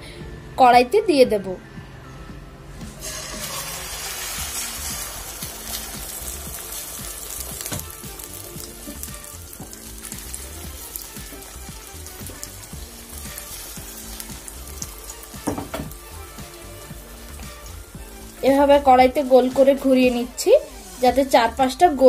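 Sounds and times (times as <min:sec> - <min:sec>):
egg batter sizzling in oil: 0:02.9 - 0:22.0
thump: 0:15.4 - 0:15.9.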